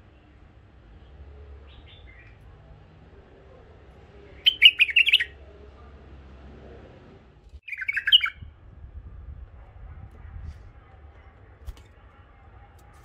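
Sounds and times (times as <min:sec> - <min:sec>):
bird chirping: 0:00.0 - 0:02.7, 0:04.1 - 0:05.5, 0:07.6 - 0:08.6
bird song phrase: 0:00.0 - 0:02.8, 0:03.8 - 0:05.6, 0:07.6 - 0:08.5.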